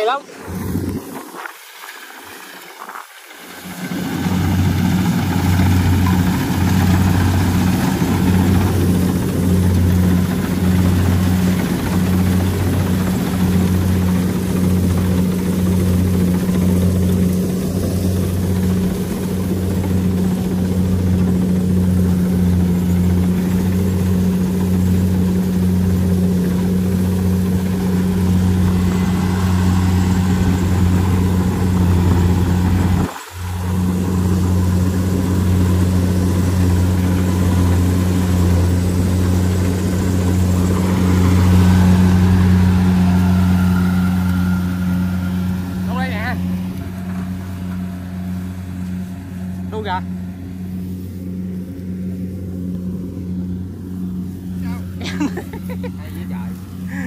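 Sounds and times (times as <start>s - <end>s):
small engine running steadily: 0.0s - 57.0s.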